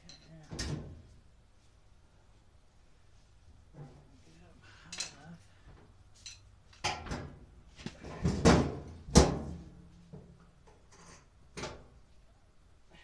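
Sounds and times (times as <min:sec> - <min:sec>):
washer parts knocking and clunking: 0:08.0 - 0:09.6.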